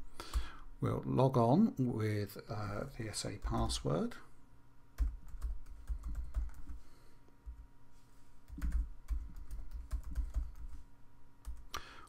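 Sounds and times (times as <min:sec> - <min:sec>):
typing on computer keyboard: 0:05.0 - 0:06.8, 0:08.5 - 0:10.7.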